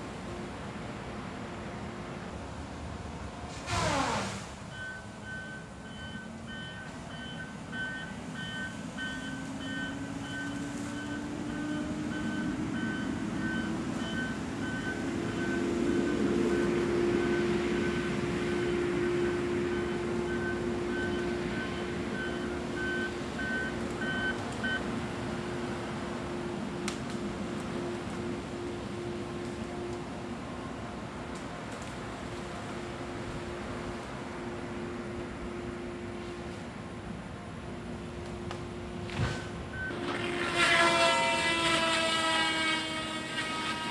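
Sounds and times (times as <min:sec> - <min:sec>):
diesel engine running: 0:00.0 - 0:40.3
backup alarm beeping: 0:04.7 - 0:24.9, 0:39.7 - 0:40.0.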